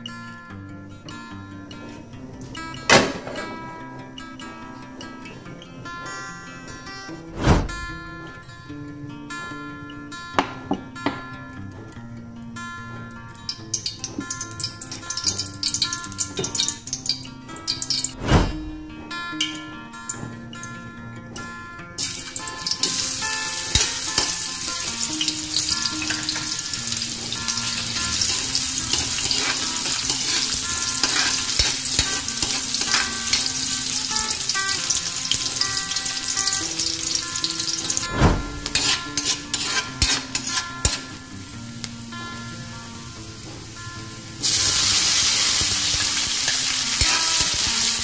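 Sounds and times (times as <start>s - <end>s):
light background music: 0.0s - 48.0s
food sizzling in hot oil: 13.5s - 18.7s, 22.0s - 48.0s
metal spatula scraping wok: 22.0s - 41.4s, 44.4s - 48.0s.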